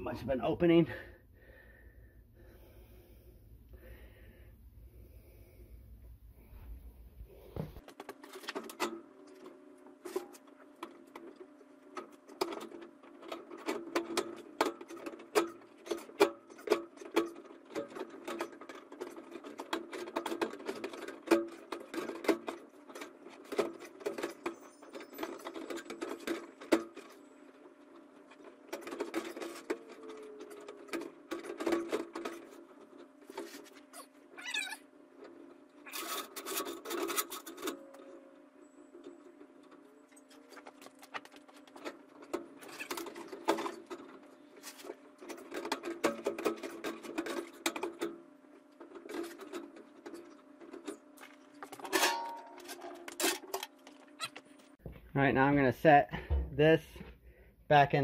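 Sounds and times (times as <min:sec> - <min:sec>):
metal chimney liner clattering: 0:51.6 - 0:53.8.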